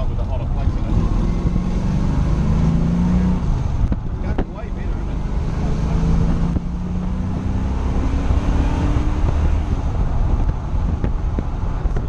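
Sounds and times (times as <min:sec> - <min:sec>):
car engine running: 0:00.0 - 0:12.0
wind noise: 0:05.4 - 0:12.0.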